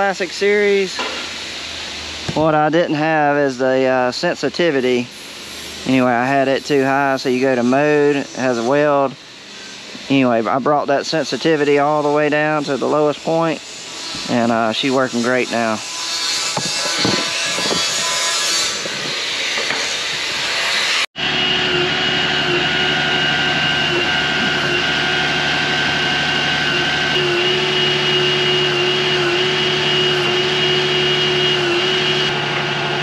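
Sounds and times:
dense hissing noise: 0.0 - 15.8
high whine: 0.0 - 33.0
truck engine and equipment humming: 21.2 - 33.0.

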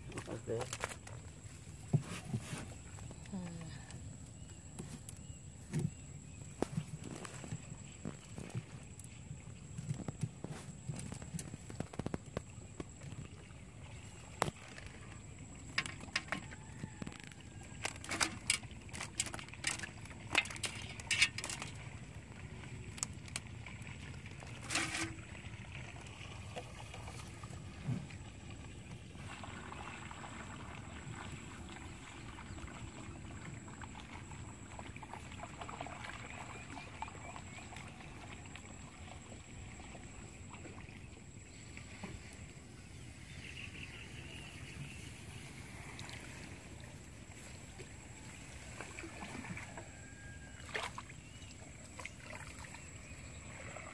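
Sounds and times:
fish trap slats clicking and knocking: 17.8 - 21.8.

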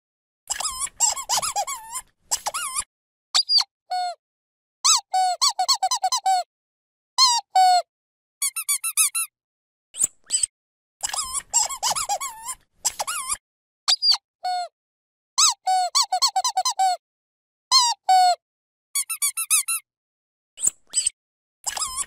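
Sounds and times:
squeaky dog toy squeaking: 0.5 - 4.2, 4.9 - 6.5, 7.2 - 7.8, 8.4 - 9.3, 10.3 - 14.7, 15.4 - 17.0, 17.7 - 18.4, 19.0 - 19.8, 20.6 - 22.0.

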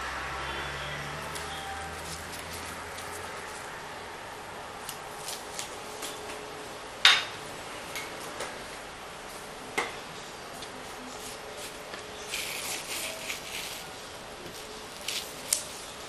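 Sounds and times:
masking tape being peeled: 1.1 - 3.8, 4.8 - 6.2, 11.1 - 15.9.

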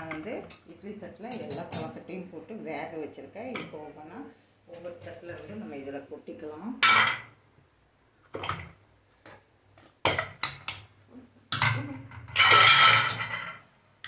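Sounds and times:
metal plates clattering and clinking: 11.5 - 13.6.

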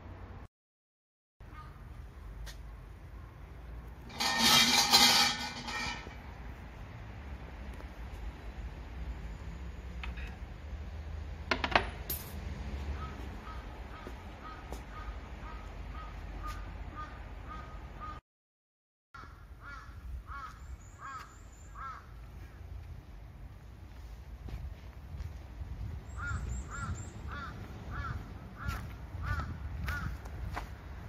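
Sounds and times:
birds calling: 12.8 - 18.2, 19.2 - 22.6, 26.0 - 30.3.

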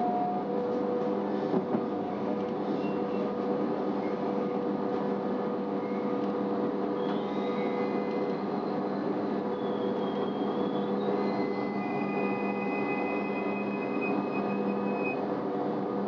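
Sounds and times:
railcar drive hum: 0.0 - 16.0
faint high wheel squeal: 2.6 - 3.4, 5.8 - 6.2, 6.9 - 15.2.

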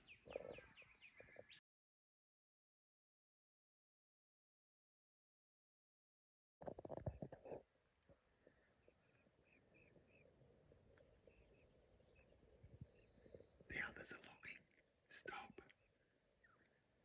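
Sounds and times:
insects trilling: 6.6 - 17.0.

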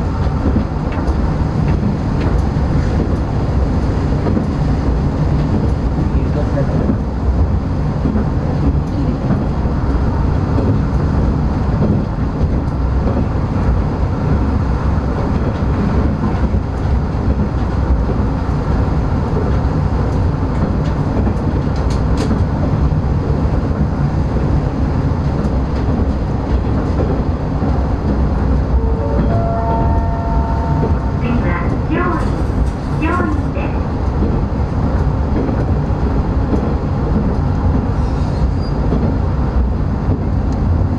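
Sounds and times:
railcar engine and wheels on rail: 0.0 - 40.9
tone rising in pitch: 28.8 - 31.4.

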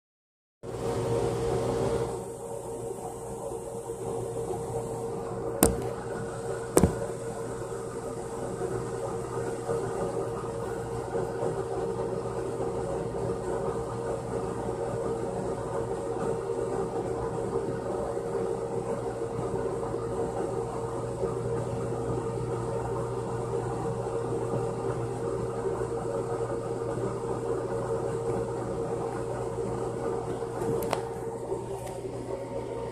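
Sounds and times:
motor hum: 0.7 - 15.9
mechanical hum: 0.7 - 32.9.

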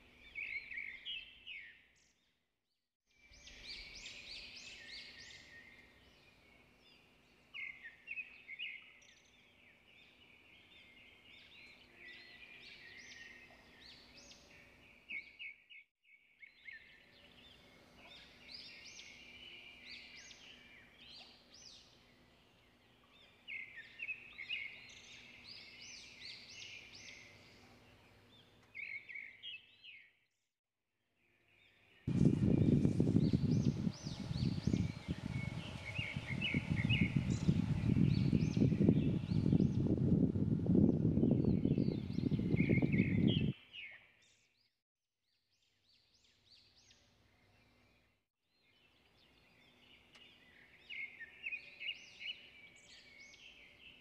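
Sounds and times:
songbirds chirping and trilling: 0.0 - 2.4, 3.2 - 30.2, 31.2 - 44.8, 45.6 - 54.0.

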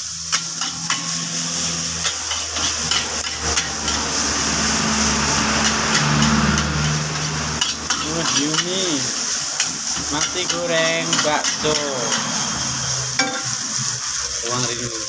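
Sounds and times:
rice sizzling: 0.0 - 15.0
metal spatula clanking on wok: 2.0 - 4.1, 5.6 - 8.8, 9.6 - 12.4, 13.2 - 13.6.

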